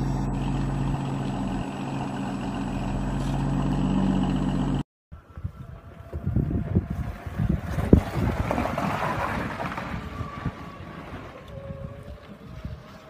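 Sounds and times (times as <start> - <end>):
wind buffeting microphone: 5.2 - 13.0.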